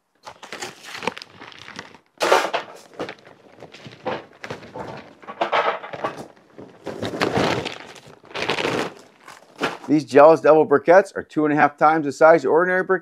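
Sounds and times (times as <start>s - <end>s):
charcoal clattering into grill: 2.2s - 3.0s.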